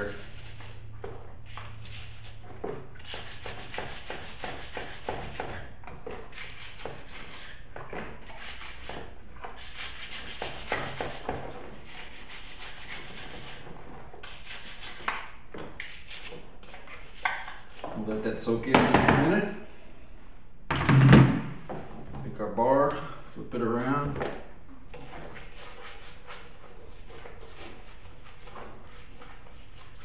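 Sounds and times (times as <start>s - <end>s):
bristle brush scrubbing: 0.0s - 0.9s, 1.5s - 2.4s, 9.6s - 13.6s, 14.2s - 15.2s, 25.1s - 30.0s.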